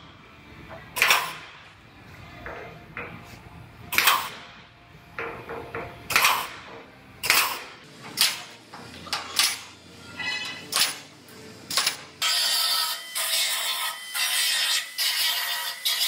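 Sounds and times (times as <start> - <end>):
pneumatic punch snapping through metal: 0.9 - 1.6, 3.9 - 4.6, 5.2 - 11.1, 11.7 - 12.6.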